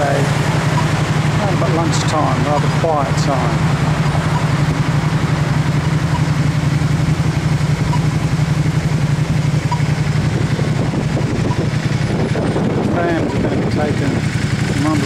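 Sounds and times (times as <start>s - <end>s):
car engines running and idling: 0.0s - 15.0s
faint short crossing beeps: 0.7s - 1.0s, 4.3s - 4.6s, 6.0s - 6.4s, 7.8s - 8.2s, 9.7s - 10.0s.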